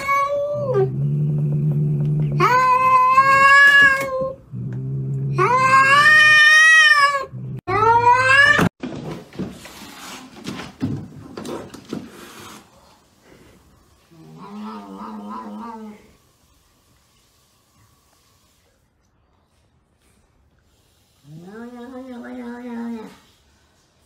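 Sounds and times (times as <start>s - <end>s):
cat growling: 14.1s - 16.1s.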